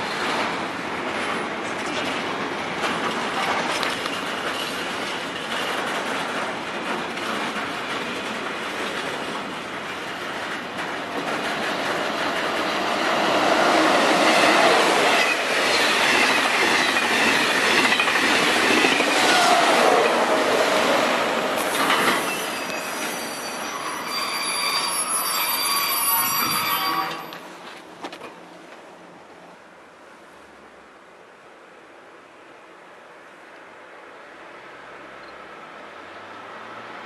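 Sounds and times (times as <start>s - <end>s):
train wagons rolling past: 0.0s - 29.5s
wavering wheel squeal: 22.1s - 27.4s.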